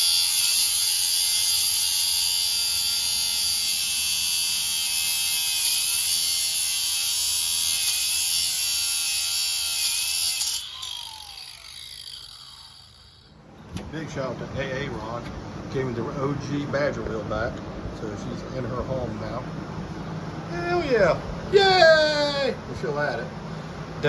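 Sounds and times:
angle grinder cutting steel: 0.0 - 13.4.

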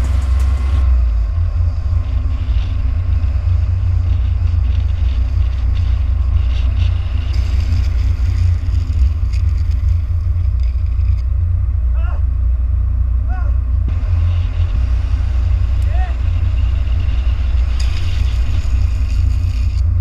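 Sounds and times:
wheels rumbling on asphalt: 0.0 - 20.0
wind buffeting microphone: 0.0 - 20.0
skateboard sliding scrape: 1.9 - 11.2, 14.1 - 20.0.

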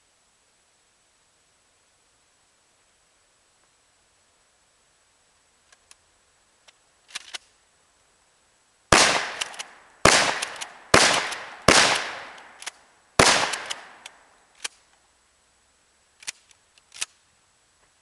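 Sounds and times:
gun handling clicks: 6.6 - 7.5, 9.0 - 15.0, 16.2 - 17.2
shotgun blasts with echo: 8.9 - 14.1.

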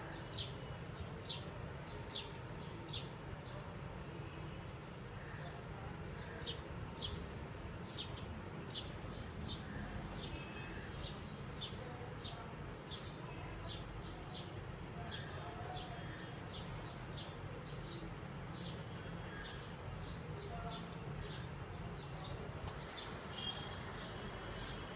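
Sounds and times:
bird chirping: 22.0 - 24.8.

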